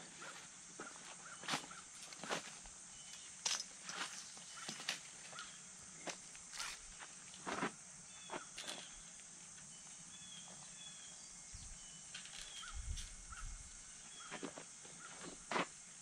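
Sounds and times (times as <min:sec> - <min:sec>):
high insect drone: 0:00.0 - 0:16.0
bird-like chirps: 0:09.7 - 0:14.4.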